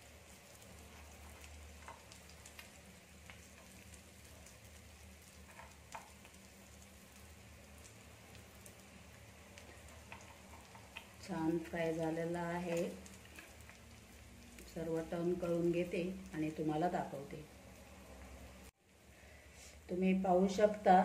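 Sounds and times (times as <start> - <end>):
clams sizzling in a pan: 0.0 - 21.0
small clicks and pops: 0.6 - 11.3, 12.6 - 14.7.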